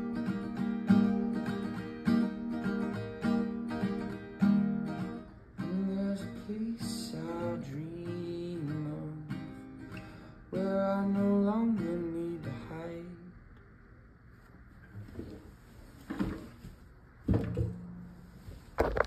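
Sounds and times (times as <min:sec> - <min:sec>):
acoustic guitar strumming: 0:00.0 - 0:13.3
man singing: 0:05.6 - 0:09.6, 0:10.5 - 0:13.4.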